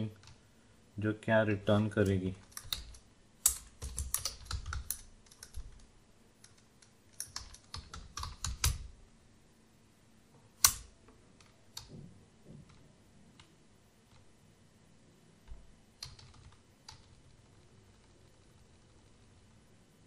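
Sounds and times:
keyboard typing: 0:02.4 - 0:08.9, 0:16.0 - 0:18.8.

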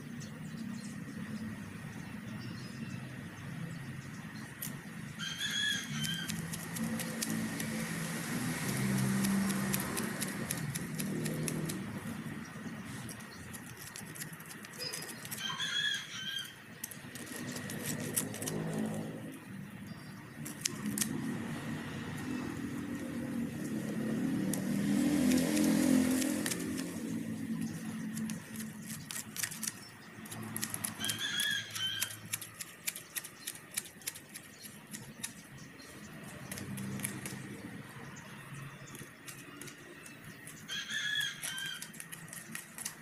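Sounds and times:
vehicle engine passing: 0:03.8 - 0:15.3, 0:16.8 - 0:43.0
grass shears snipping: 0:05.8 - 0:12.0, 0:12.9 - 0:15.5, 0:16.8 - 0:19.0, 0:20.4 - 0:21.4, 0:23.6 - 0:35.5, 0:36.2 - 0:37.8, 0:41.2 - 0:43.0.

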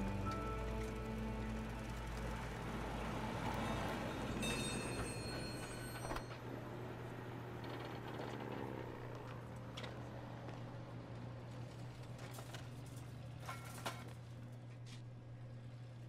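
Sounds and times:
high metallic ringing: 0:00.0 - 0:06.4
electric tram on rails: 0:00.0 - 0:16.0.

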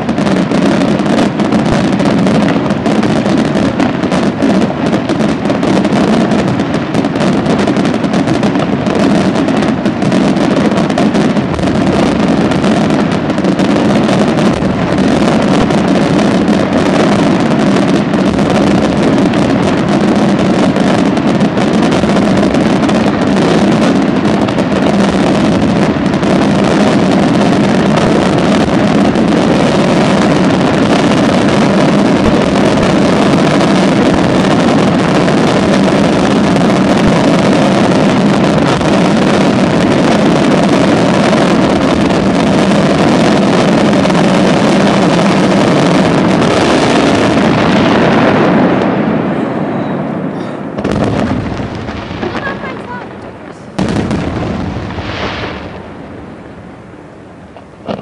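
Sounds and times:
fireworks rumbling roar with crackle: 0:00.0 - 0:58.0.

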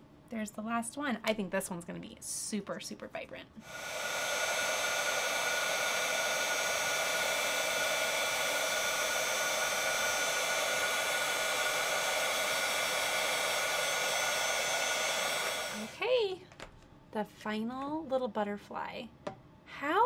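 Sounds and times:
heat tool blowing hot air: 0:03.6 - 0:16.0.

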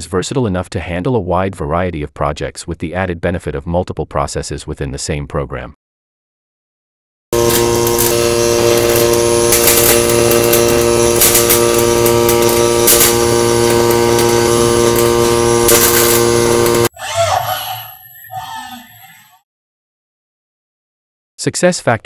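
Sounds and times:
welding arc buzzing: 0:07.3 - 0:16.9.

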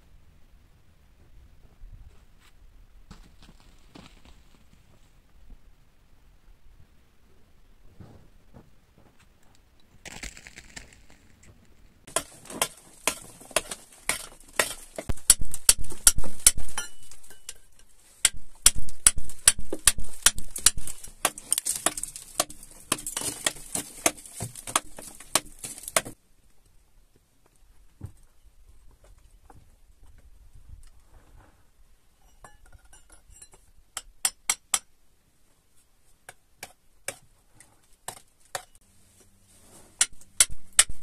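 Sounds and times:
hammer chipping rock: 0:12.1 - 0:17.6, 0:18.2 - 0:26.2.

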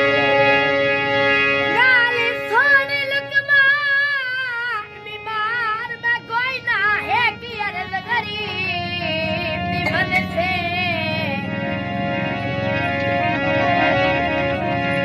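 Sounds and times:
boy singing with vibrato: 0:02.0 - 0:11.6
held keyboard chord: 0:07.0 - 0:15.0.

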